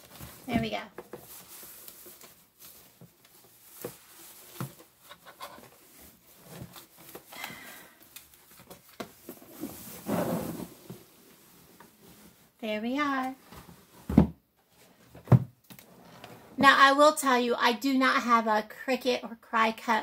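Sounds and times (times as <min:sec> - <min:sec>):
canvas bag rustling: 0:09.3 - 0:13.1.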